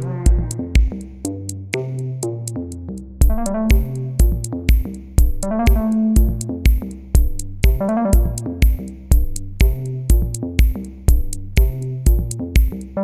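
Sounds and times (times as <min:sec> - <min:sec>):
electronic dance music: 0:00.0 - 0:00.9, 0:03.3 - 0:04.8, 0:05.4 - 0:06.8, 0:07.6 - 0:08.8.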